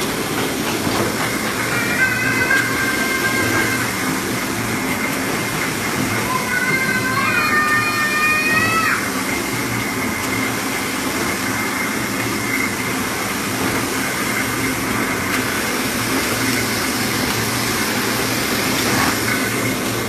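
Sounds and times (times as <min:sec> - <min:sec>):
stamping press hum and hiss: 0:08.4 - 0:20.0.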